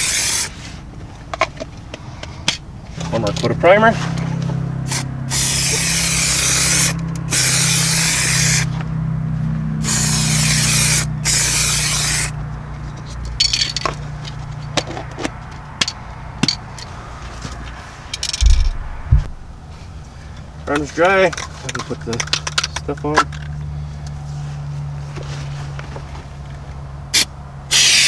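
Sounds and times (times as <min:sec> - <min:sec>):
aerosol spray can hissing: 0:27.7 - 0:28.0.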